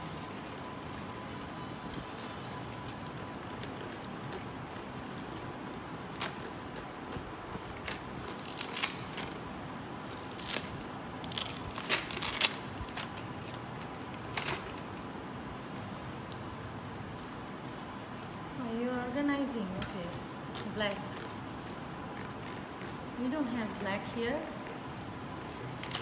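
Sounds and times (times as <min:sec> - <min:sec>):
velcro cards peeled off: 0:02.0 - 0:15.0, 0:24.6 - 0:26.0.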